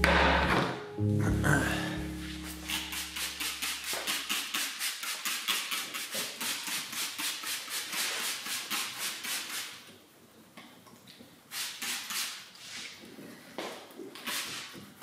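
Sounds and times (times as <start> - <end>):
spray bottle hissing sprays: 2.4 - 9.8, 11.5 - 12.8, 14.2 - 14.8.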